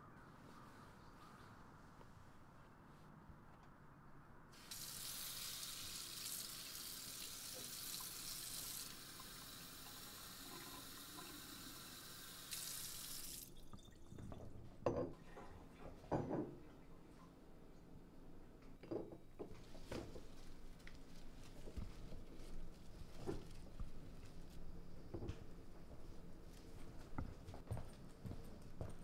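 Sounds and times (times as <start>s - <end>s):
faucet water running into carafe: 4.6s - 14.2s.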